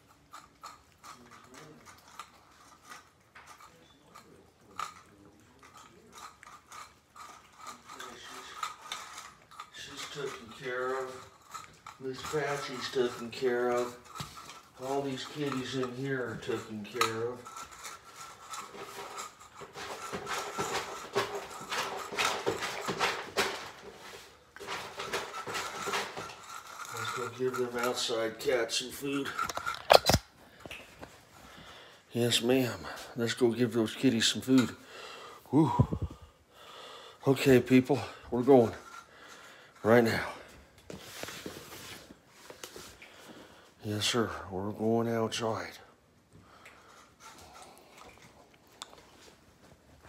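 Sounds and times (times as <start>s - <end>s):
cat chewing food: 0.0s - 9.8s, 46.4s - 49.8s
cats crunching food: 0.0s - 32.4s, 45.9s - 50.0s.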